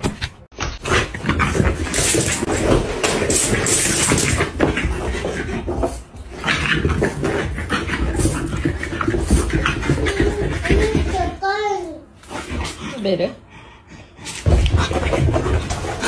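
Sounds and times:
dog making noises: 0:06.6 - 0:11.4.

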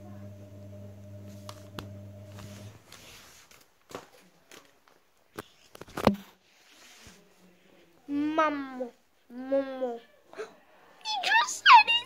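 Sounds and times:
steady low hum: 0:00.0 - 0:02.8.

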